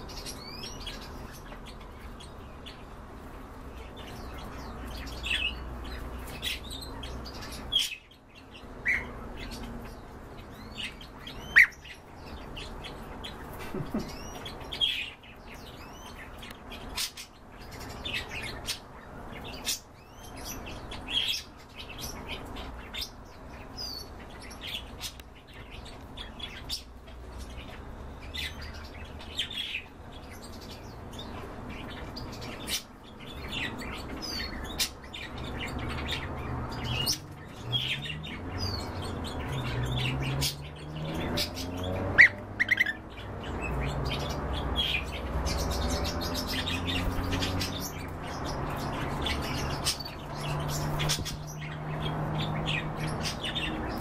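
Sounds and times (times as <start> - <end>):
pet birds chirping: 0.0 - 54.0.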